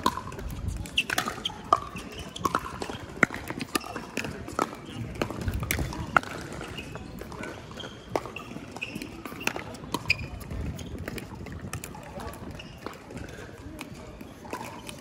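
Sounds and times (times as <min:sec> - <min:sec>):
paddles hitting plastic ball: 0:00.0 - 0:11.9.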